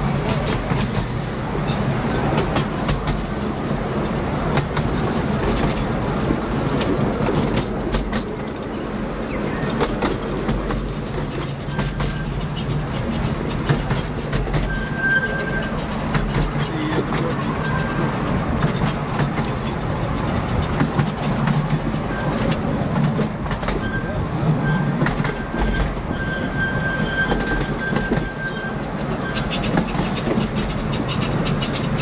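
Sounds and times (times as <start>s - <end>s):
miniature train rumbling: 0.0s - 32.0s
train wheels clicking: 0.0s - 32.0s
wheel flange squeals: 11.4s - 16.0s, 17.4s - 19.4s, 22.0s - 22.6s, 23.7s - 32.0s.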